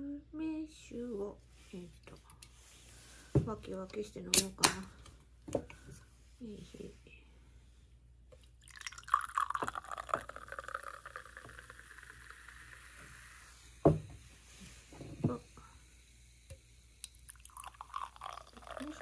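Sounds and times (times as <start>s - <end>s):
fizzing drink pouring into glass: 8.5s - 13.6s, 17.0s - 19.0s.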